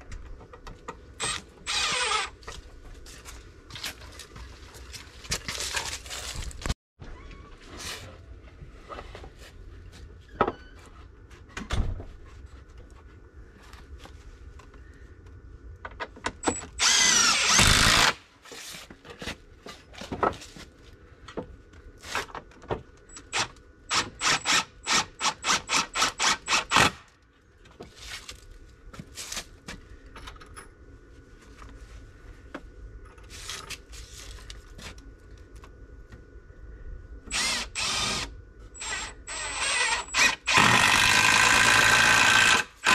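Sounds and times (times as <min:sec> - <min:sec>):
impact driver driving screws: 0:37.3 - 0:42.9.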